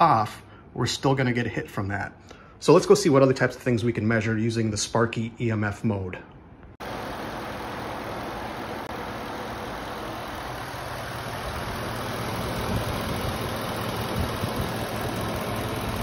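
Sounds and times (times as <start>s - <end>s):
truck engine idling: 6.8s - 16.0s.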